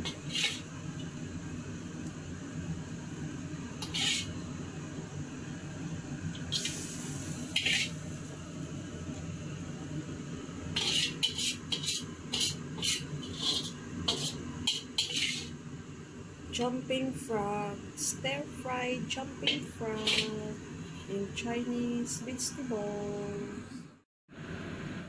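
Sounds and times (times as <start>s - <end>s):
utensils scraping cookware: 0.0s - 0.7s, 3.8s - 4.3s, 7.6s - 8.0s, 10.8s - 15.6s, 19.4s - 20.5s
steady low hum: 0.0s - 25.0s.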